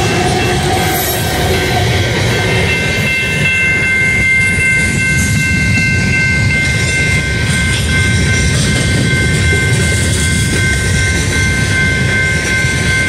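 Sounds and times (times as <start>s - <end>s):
high ringing tones: 0.0s - 13.0s
train wheels rumbling on rail: 0.0s - 13.0s.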